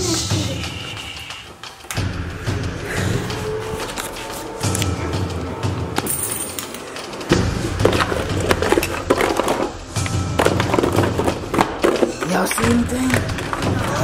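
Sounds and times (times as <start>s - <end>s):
boxes clattering and rustling: 6.0s - 14.0s.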